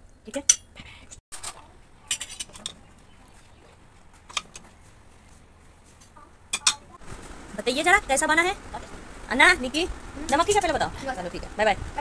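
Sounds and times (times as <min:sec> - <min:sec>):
utensils clinking on steel plates: 0:01.4 - 0:02.8, 0:06.5 - 0:06.9.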